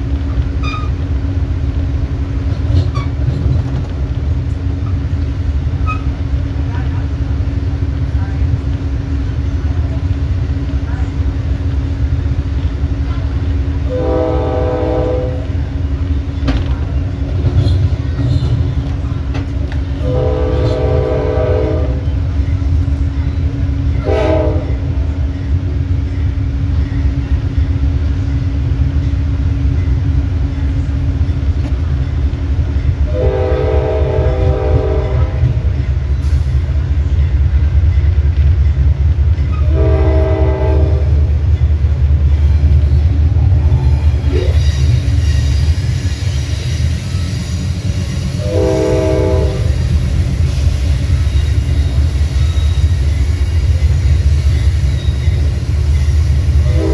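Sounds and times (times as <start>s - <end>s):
train wheels on rails: 0.0s - 56.9s
train horn blasts: 13.8s - 15.7s, 20.0s - 22.2s, 23.9s - 25.0s, 33.1s - 35.8s, 39.5s - 41.3s, 48.2s - 49.9s, 56.6s - 56.9s.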